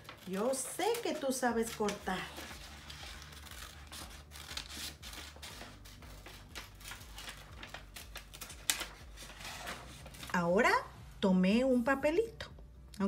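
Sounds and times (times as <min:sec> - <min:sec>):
scissors snipping paper: 0:00.1 - 0:09.0.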